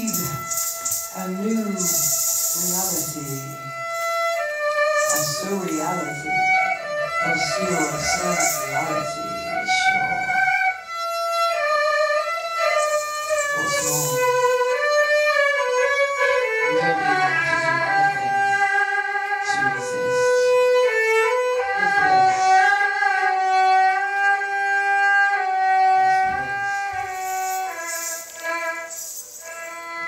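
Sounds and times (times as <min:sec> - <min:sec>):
bowed two-string fiddle: 0:00.0 - 0:30.0.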